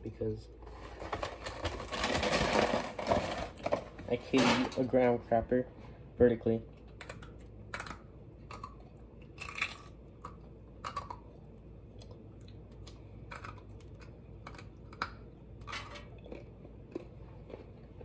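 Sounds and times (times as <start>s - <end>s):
cracker crunching while chewed: 6.8s - 18.0s.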